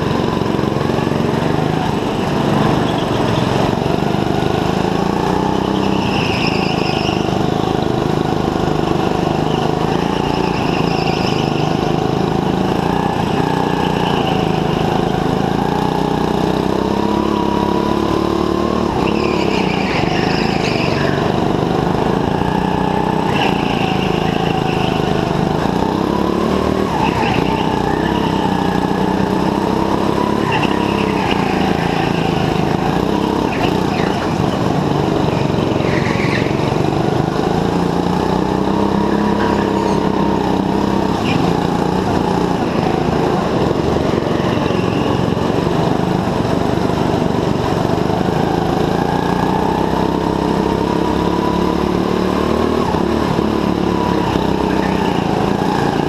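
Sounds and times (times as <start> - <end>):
go-kart engine revving: 0.0 - 56.0
tyre squeals: 5.4 - 8.0, 9.4 - 12.2, 18.9 - 37.0, 38.7 - 45.6.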